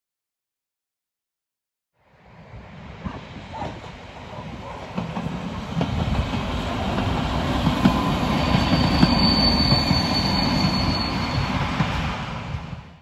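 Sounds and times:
diesel railcar passing: 2.2 - 13.0
high wheel squeal: 7.7 - 11.8.

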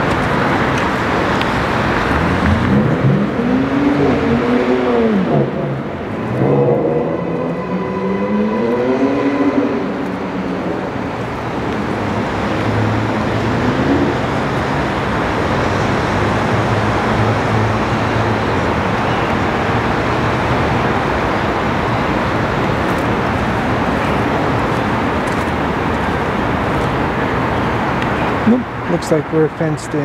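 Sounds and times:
low hum: 0.0 - 14.4
road traffic noise: 0.0 - 30.0.

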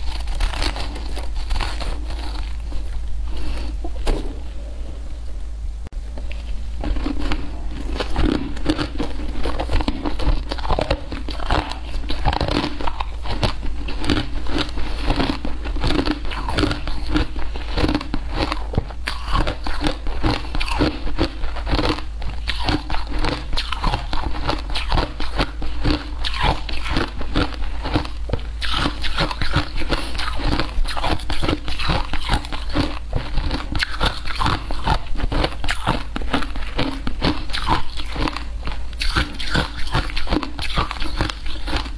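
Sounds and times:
crunching and chewing ice: 0.0 - 3.9, 6.2 - 41.9.

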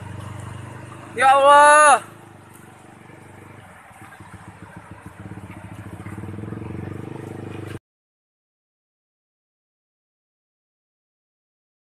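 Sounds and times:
engine running with low pulsing: 0.0 - 7.8.

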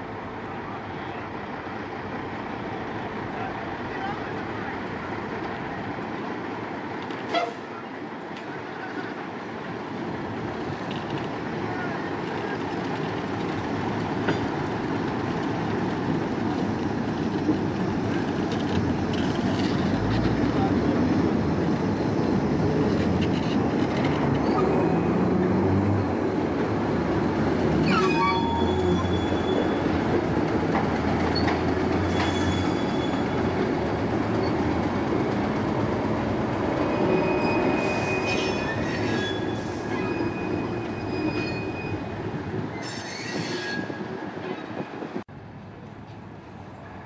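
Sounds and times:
diesel locomotive engine drone: 0.0 - 47.0
train wheels on rails: 1.3 - 47.0
wheels squealing: 15.1 - 44.9.

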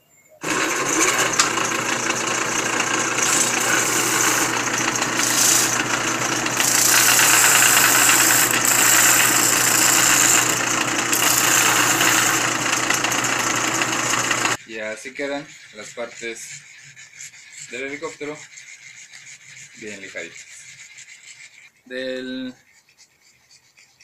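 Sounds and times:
sander motor humming: 0.4 - 14.6
wood sanding hiss: 0.4 - 14.6.

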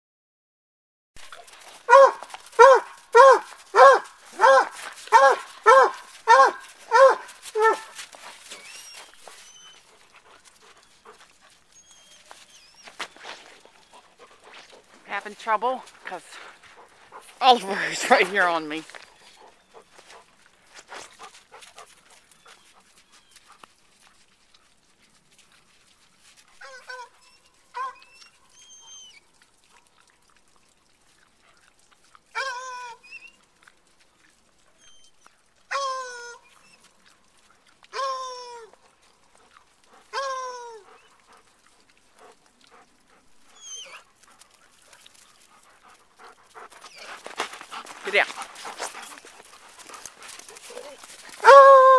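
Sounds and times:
paws scuffling in snow: 1.2 - 27.6, 43.5 - 51.9
dogs whining: 1.9 - 10.0, 11.7 - 14.1, 26.6 - 29.2, 34.8 - 36.9, 40.1 - 41.1, 43.5 - 44.1, 49.9 - 51.9.

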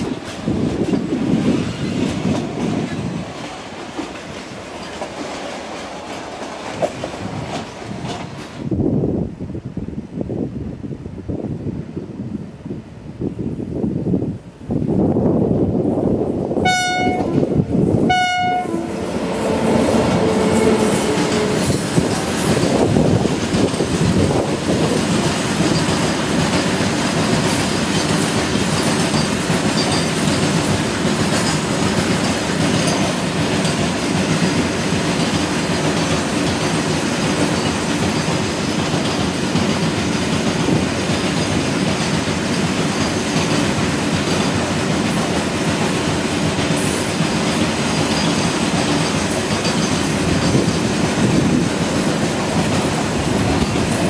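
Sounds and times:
clickety-clack over rail joints: 0.0 - 8.8, 19.2 - 54.0
train wheels on rail: 0.0 - 54.0
locomotive horn blasts: 16.6 - 21.9.

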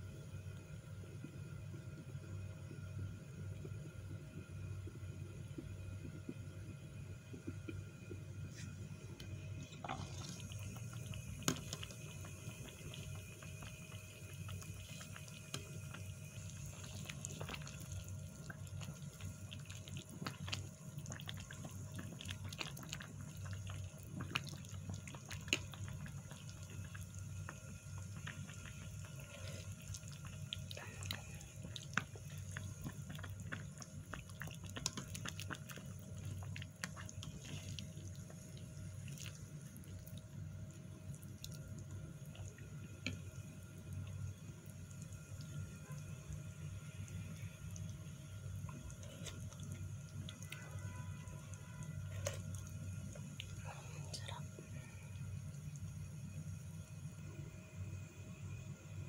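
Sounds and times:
low steady hum: 0.0 - 59.0
soup simmering in a pot: 0.0 - 59.0
ladle pouring broth: 9.6 - 13.1.

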